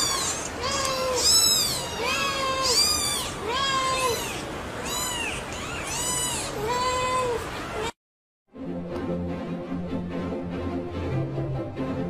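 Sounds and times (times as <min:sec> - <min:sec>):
kittens mewing: 0:00.0 - 0:08.0.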